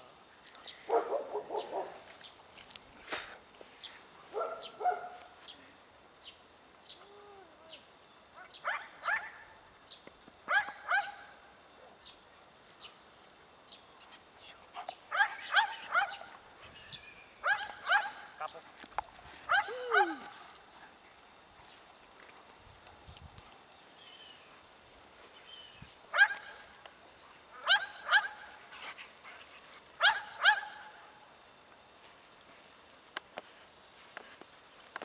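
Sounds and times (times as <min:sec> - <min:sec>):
dog barking: 0:00.9 - 0:02.0, 0:04.3 - 0:05.3, 0:08.6 - 0:09.5, 0:10.5 - 0:11.3, 0:14.8 - 0:16.3, 0:17.4 - 0:18.3, 0:26.1 - 0:26.6, 0:27.6 - 0:28.5, 0:30.0 - 0:30.9.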